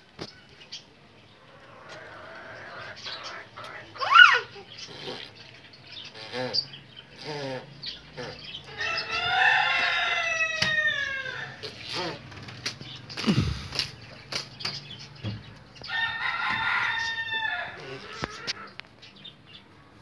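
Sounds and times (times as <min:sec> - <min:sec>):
chickens clucking: 0:00.8 - 0:19.0
rooster crowing: 0:08.7 - 0:11.6, 0:15.9 - 0:18.7.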